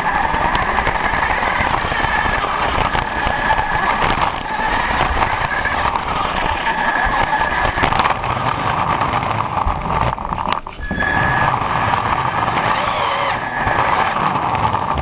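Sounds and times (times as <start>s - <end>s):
toy car motor whine: 0.0s - 15.0s.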